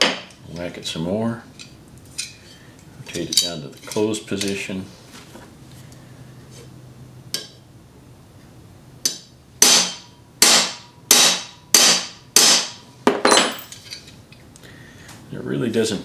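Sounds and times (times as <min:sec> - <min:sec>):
hammer striking metal rivet: 0:09.0 - 0:13.8.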